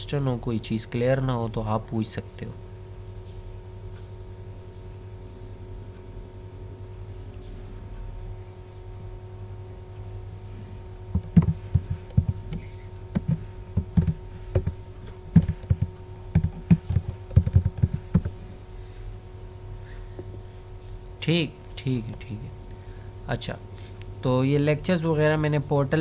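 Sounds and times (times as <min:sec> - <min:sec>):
low electrical hum: 0:00.0 - 0:26.0
typing on a computer keyboard: 0:13.2 - 0:14.8, 0:15.4 - 0:18.3.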